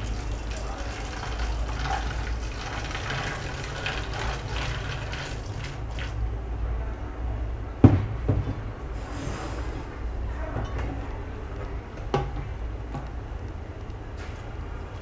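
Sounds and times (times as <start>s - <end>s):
water pouring into plastic bottle: 0.0s - 6.2s.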